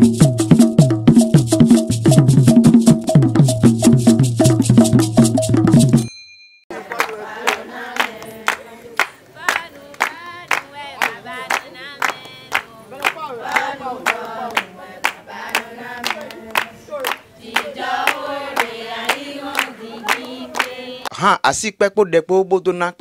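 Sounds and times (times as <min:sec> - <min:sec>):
hands clapping steady beat: 0:06.7 - 0:21.1
women singing in chorus: 0:06.8 - 0:21.1.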